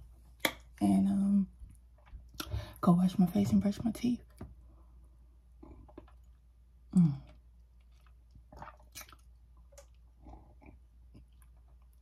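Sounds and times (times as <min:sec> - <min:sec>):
sipping and swallowing: 0:05.5 - 0:12.0.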